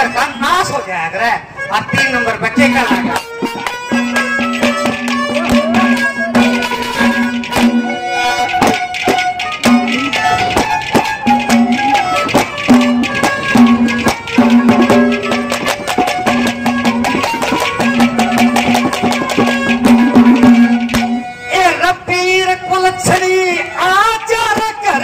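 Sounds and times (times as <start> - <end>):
melody instrument held notes: 1.6 - 25.0
drums beating quick rhythm: 2.6 - 21.5.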